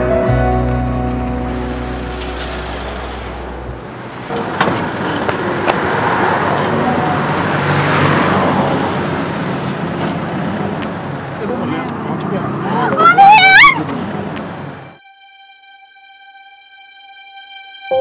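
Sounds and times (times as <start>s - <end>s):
low music chord: 0.0s - 2.3s, 15.0s - 18.0s
vehicle passing by: 0.7s - 13.1s.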